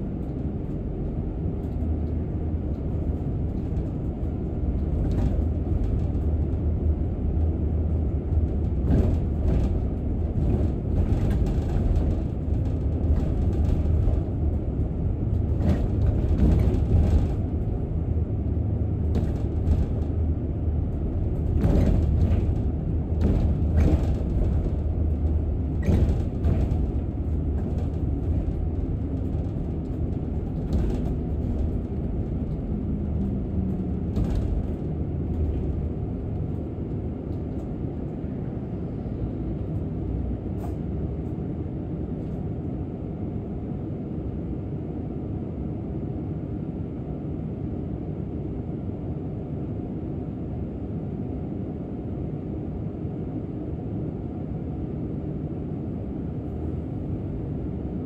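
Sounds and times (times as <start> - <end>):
bus rumbling on the road: 0.0 - 58.0
bodywork rattling and creaking: 1.6 - 18.3, 19.0 - 38.2.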